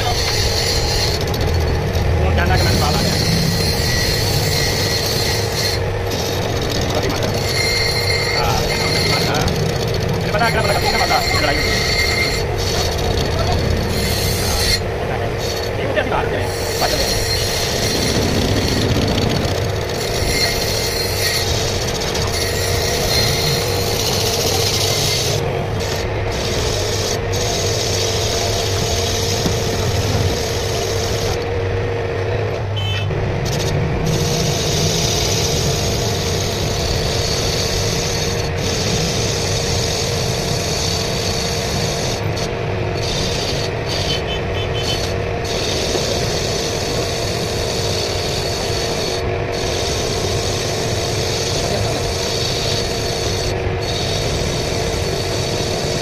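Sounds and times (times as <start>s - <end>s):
cutting tool scraping metal: 0.0s - 31.5s, 32.8s - 56.0s
lathe motor hum: 0.0s - 56.0s.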